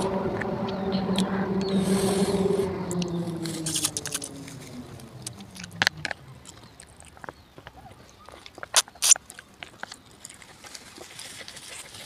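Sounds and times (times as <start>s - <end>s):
low drone dropping in pitch: 0.0s - 7.1s
mouth clicks and smacks eating: 5.3s - 12.0s.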